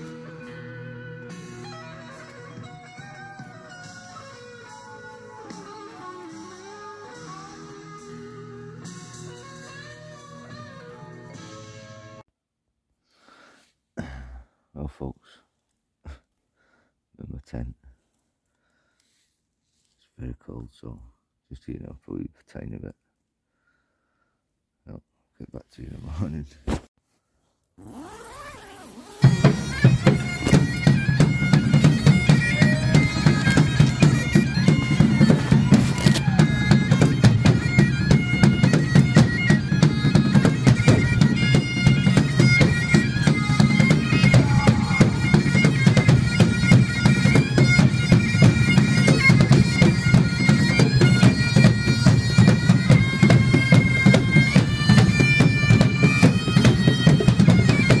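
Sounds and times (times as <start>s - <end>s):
bagpipe music: 0.0s - 12.2s, 29.0s - 58.0s.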